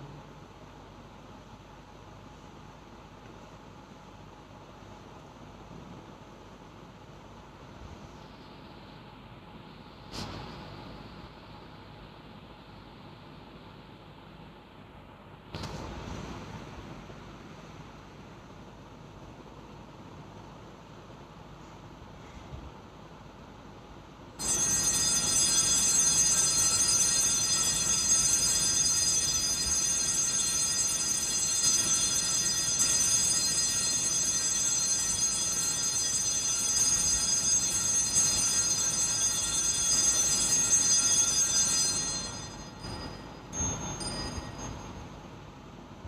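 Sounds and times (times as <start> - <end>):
small bells jangling: 24.4 - 45.4.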